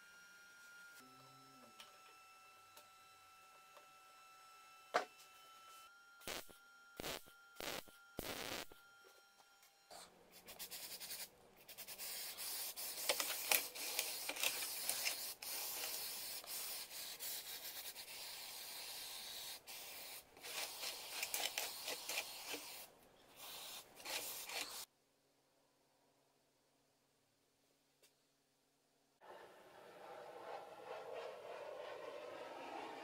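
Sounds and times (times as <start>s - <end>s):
aerosol spray can hissing: 10.6s - 24.9s.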